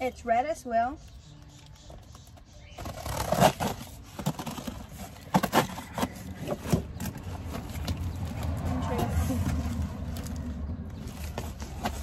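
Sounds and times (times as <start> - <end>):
cardboard box scraping: 2.7 - 10.0, 11.0 - 12.0.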